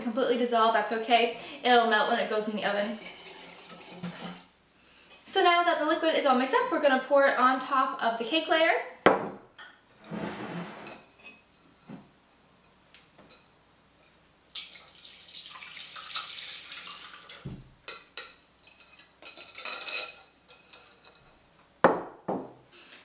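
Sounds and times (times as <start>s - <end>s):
whisk scraping a glass bowl: 2.9s - 4.4s
liquid pouring into a dish: 3.0s - 4.4s, 14.5s - 17.7s.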